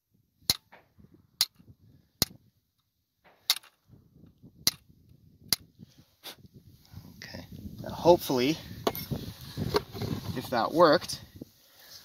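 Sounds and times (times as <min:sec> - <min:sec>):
sharp taps knapping flint: 0:00.5 - 0:03.8, 0:04.6 - 0:04.9, 0:05.5 - 0:05.7.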